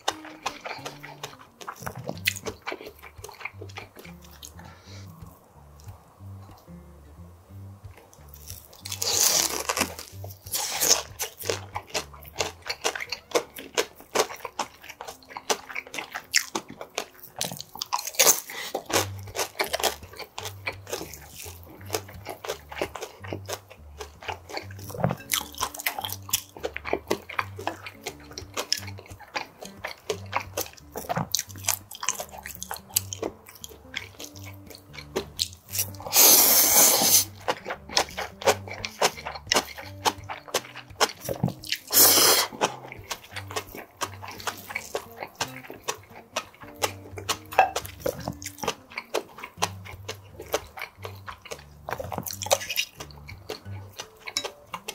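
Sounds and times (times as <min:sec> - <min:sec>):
crisp chewing and crunching: 0:00.0 - 0:06.7, 0:07.8 - 0:54.9
wet mouth clicks: 0:00.0 - 0:06.7, 0:07.9 - 0:54.9
noodle slurp: 0:35.8 - 0:52.9.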